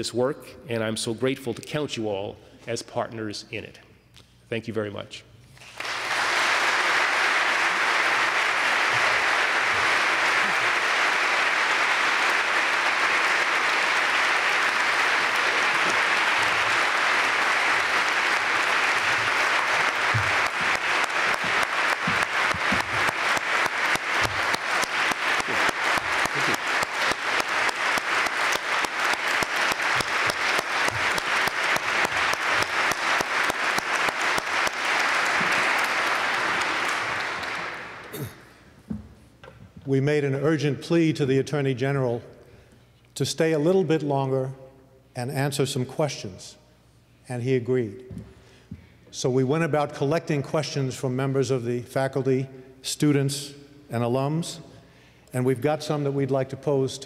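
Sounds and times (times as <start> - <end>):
large audience applauding: 5.6 - 38.6.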